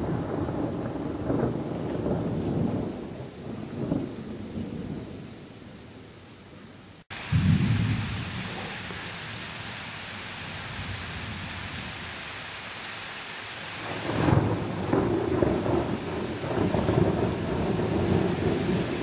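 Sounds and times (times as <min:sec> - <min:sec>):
thunder rumbling: 0:00.0 - 0:06.0, 0:07.1 - 0:09.6, 0:13.8 - 0:19.0
steady rain: 0:00.0 - 0:19.0.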